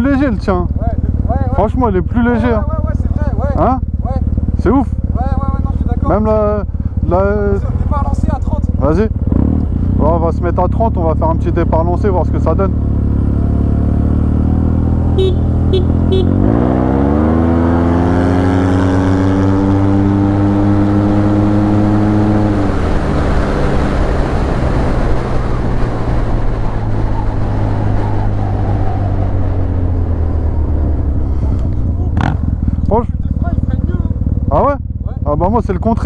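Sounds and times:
scooter engine revving: 0:12.7 - 0:25.1, 0:30.2 - 0:35.2
short horn beeps: 0:15.1 - 0:16.4
wind rush: 0:19.4 - 0:32.8.

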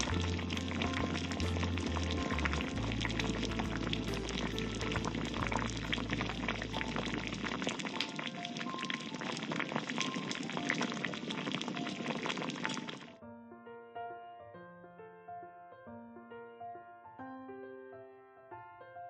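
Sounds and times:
stew bubbling and popping: 0:00.0 - 0:13.2.

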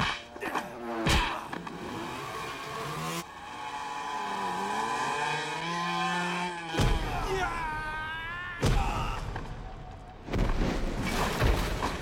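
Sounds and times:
small motorcycle engine revving: 0:01.7 - 0:06.7.

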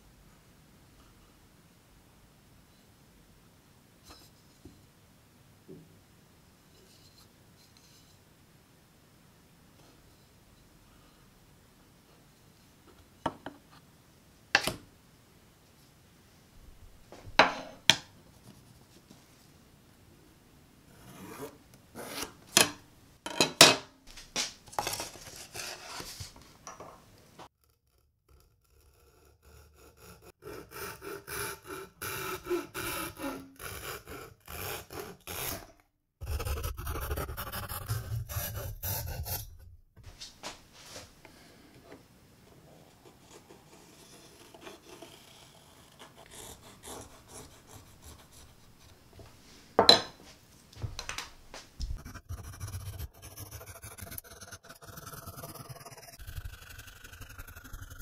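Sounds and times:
hand tool rasping wooden board: 0:51.8 - 0:58.0.

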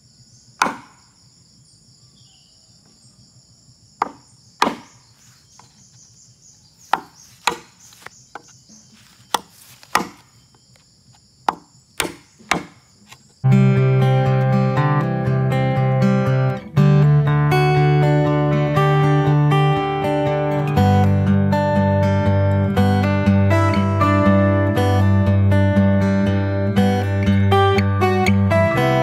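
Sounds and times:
crickets trilling: 0:00.0 - 0:16.7
machete chopping bamboo: 0:00.6 - 0:01.1, 0:04.0 - 0:05.0, 0:06.9 - 0:10.4, 0:11.4 - 0:13.2
acoustic guitar music: 0:13.4 - 0:29.0.

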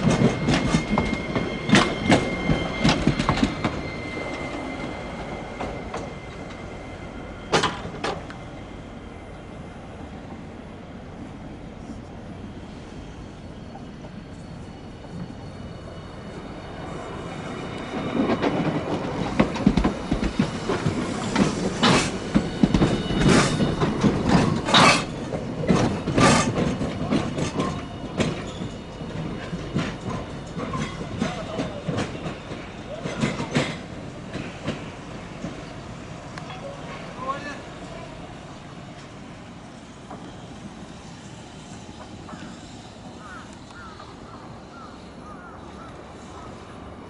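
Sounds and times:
streetcar wheels clacking over track: 0:17.8 - 0:35.8.

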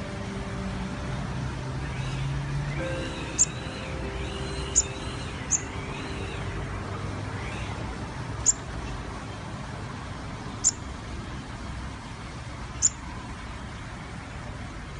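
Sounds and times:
bird high chirps: 0:01.8 - 0:08.7, 0:10.6 - 0:10.8.

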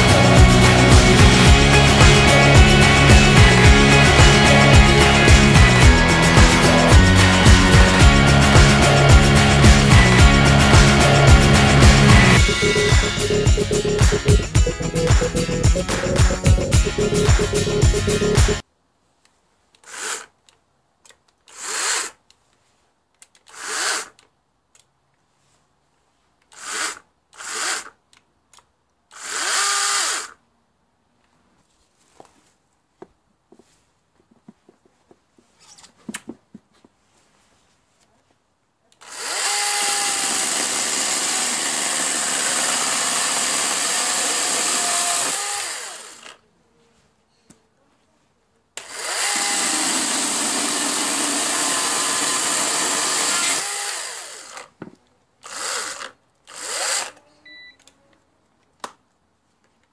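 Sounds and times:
cordless chainsaw revving: 0:00.0 - 0:14.3, 0:19.8 - 0:20.3, 0:21.5 - 0:22.2, 0:23.5 - 0:24.2, 0:26.5 - 0:28.0, 0:29.1 - 0:30.4, 0:39.0 - 0:46.4, 0:48.8 - 0:54.7, 0:55.4 - 0:57.2.

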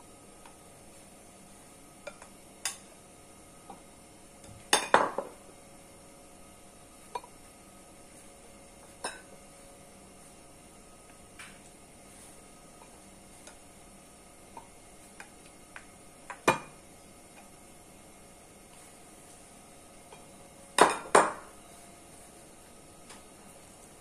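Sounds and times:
tongs tapping on dishes: 0:02.0 - 0:02.9, 0:07.1 - 0:07.4, 0:08.9 - 0:09.3, 0:12.8 - 0:13.7, 0:14.5 - 0:17.6.

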